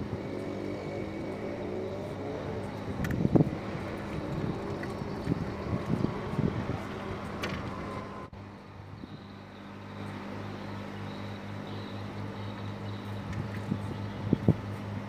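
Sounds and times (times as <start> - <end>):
wind on microphone: 0.0 - 8.3, 13.2 - 15.0
boat engine throbbing hum: 0.0 - 15.0.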